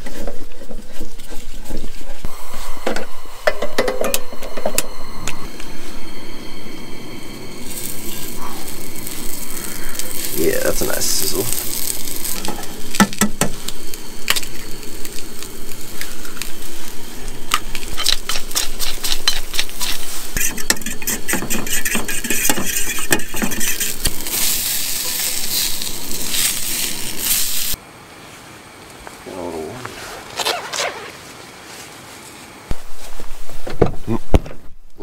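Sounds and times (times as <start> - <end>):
sausages sizzling in a skillet: 7.6 - 27.8
fork whisking eggs: 18.3 - 24.3.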